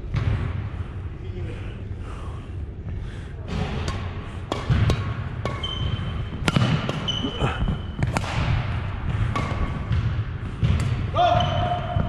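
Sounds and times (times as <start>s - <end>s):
rackets striking shuttlecock: 3.8s - 7.3s, 7.9s - 11.1s
shoe squeaks: 5.6s - 6.4s, 7.0s - 8.0s.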